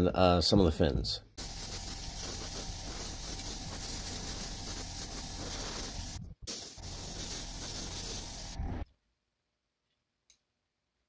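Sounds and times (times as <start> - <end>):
airbrush spraying paint: 1.4 - 8.8.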